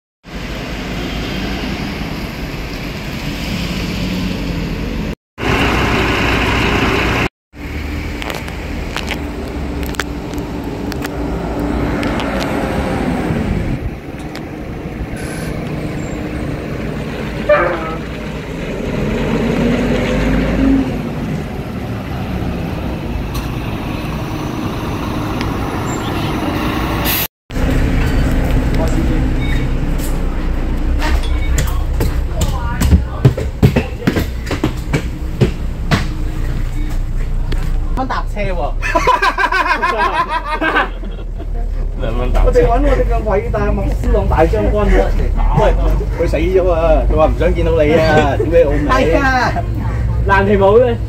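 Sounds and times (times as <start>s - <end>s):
street traffic: 0.2s - 51.0s
bus engines droning: 0.3s - 51.0s.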